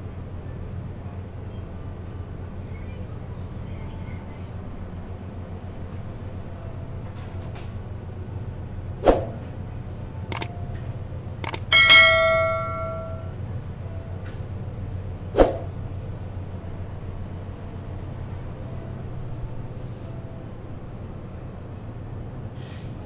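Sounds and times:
steady low hum: 10.2 - 13.5
sharp clicks and knocks: 11.4 - 13.2
metallic bell-like strike: 11.7 - 13.3.

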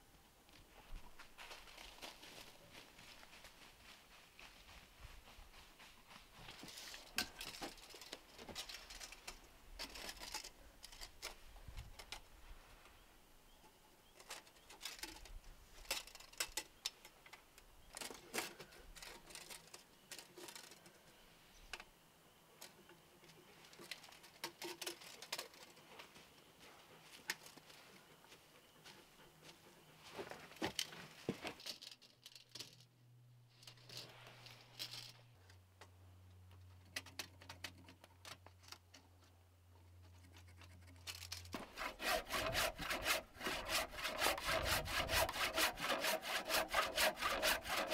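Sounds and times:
wooden pieces and tools clicking: 6.9 - 12.3, 13.6 - 21.1, 22.6 - 26.2, 33.6 - 47.9.

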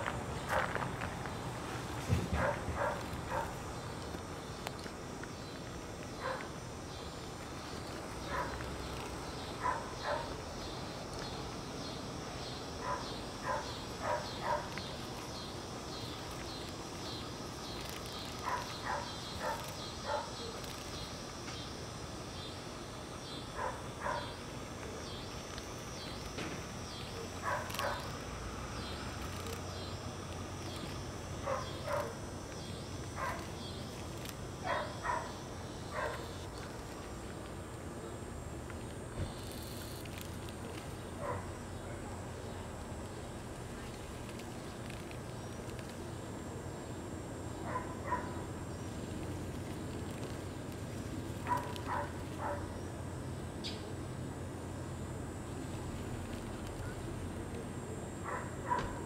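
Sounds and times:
pulsing insect chorus: 0.0 - 59.0
dog barking: 2.4 - 3.6, 6.2 - 6.5, 8.3 - 8.6, 9.6 - 10.3, 12.8 - 14.7, 18.4 - 20.4, 23.6 - 24.3, 27.4 - 28.0, 31.4 - 32.2, 33.2 - 33.4, 34.6 - 36.4, 41.2 - 41.5, 47.7 - 48.4, 51.5 - 52.6, 58.2 - 59.0.

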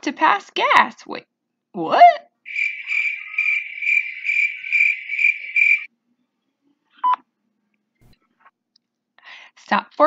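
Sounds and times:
crickets chirping: 2.5 - 5.9.

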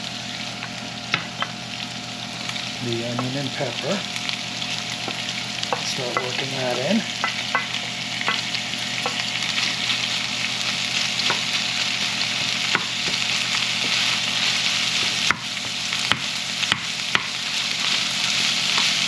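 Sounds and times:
food sizzling in a skillet: 0.0 - 19.0
wooden spoon stirring: 11.2 - 15.3.

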